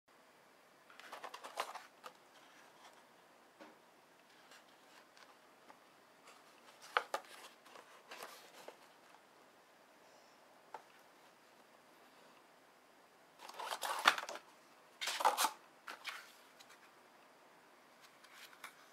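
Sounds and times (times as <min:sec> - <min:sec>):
plastic blister pack crinkling: 0:13.4 - 0:16.3.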